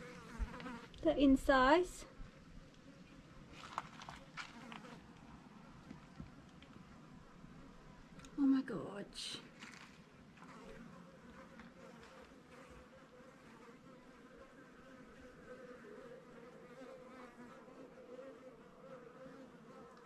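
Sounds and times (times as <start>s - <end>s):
flying insect buzzing: 0.0s - 1.3s.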